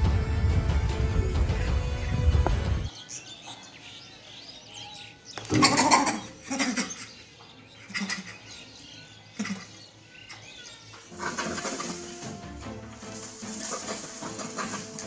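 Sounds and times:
harsh animal calls: 1.8s - 12.4s, 13.4s - 15.0s.

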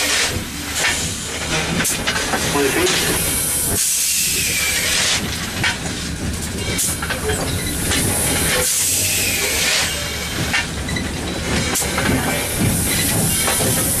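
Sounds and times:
steam hissing: 0.0s - 5.3s, 7.7s - 10.6s, 11.4s - 14.0s
locomotive cab running noise: 0.0s - 14.0s.

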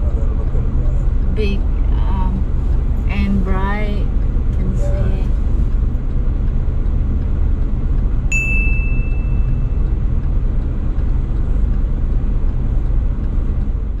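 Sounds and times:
car cabin rumble: 0.0s - 14.0s
bell ding: 8.3s - 9.8s.

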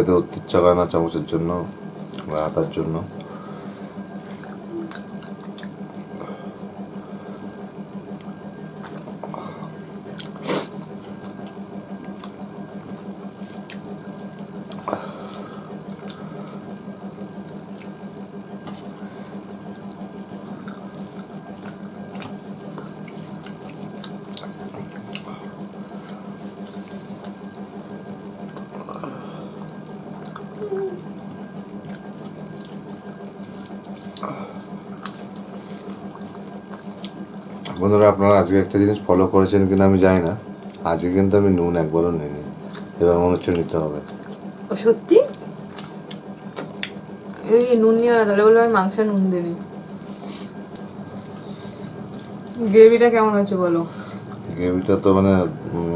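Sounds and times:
chewing: 3.0s - 37.9s, 42.6s - 47.8s, 49.6s - 52.7s, 53.9s - 54.6s
fingers squishing food: 29.6s - 37.9s.

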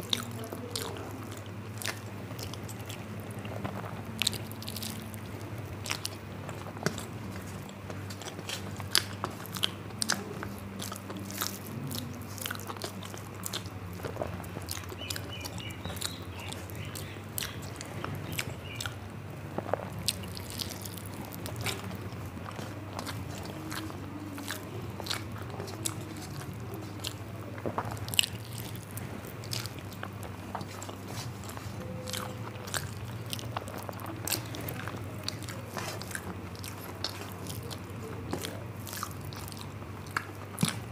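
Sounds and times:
person chewing food: 0.0s - 40.9s
steady low hum: 0.0s - 40.9s
wet mouth clicks and smacks: 19.6s - 40.9s.

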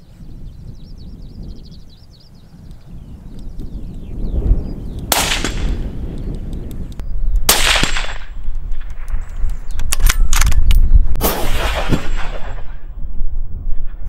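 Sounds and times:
suppressed rifle shots: 5.1s - 5.9s, 7.4s - 9.2s, 11.2s - 12.9s.

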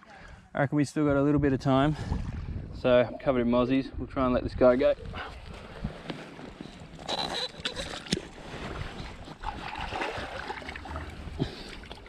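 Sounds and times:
shallow water splashing: 4.9s - 12.0s.

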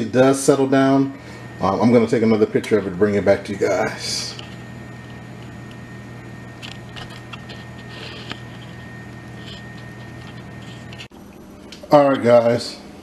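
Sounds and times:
high whine: 0.0s - 13.0s
low background hum: 0.0s - 13.0s.

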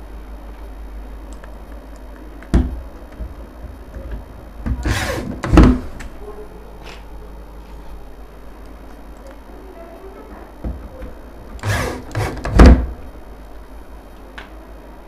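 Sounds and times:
electric drill whirring: 4.7s - 5.8s, 11.6s - 12.7s.

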